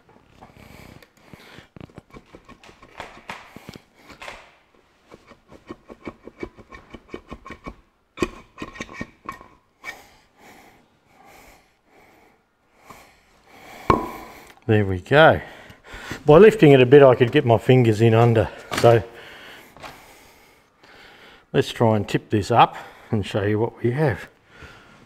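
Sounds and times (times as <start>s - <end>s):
man breathing heavily: 0.4s - 1.8s, 9.8s - 14.6s, 15.4s - 16.3s, 18.4s - 21.5s, 22.7s - 23.1s, 24.4s - 25.0s.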